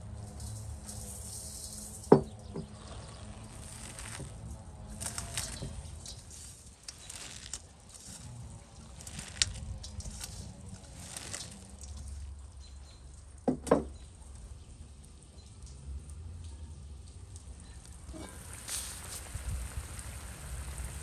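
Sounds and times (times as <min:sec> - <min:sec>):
cabbage leaves rustling: 0:02.7 - 0:12.6, 0:17.9 - 0:21.0.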